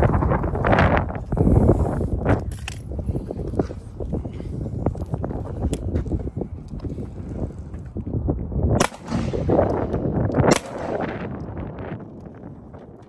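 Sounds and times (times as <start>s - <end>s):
gunshot echo: 8.8s - 11.4s
pistol shots: 8.8s - 11.6s.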